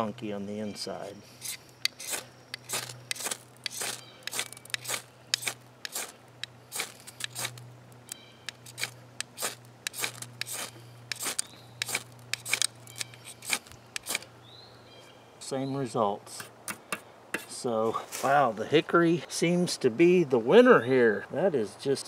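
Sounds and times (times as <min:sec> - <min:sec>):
ferro rod rasping strikes: 0:16.4 - 0:17.6.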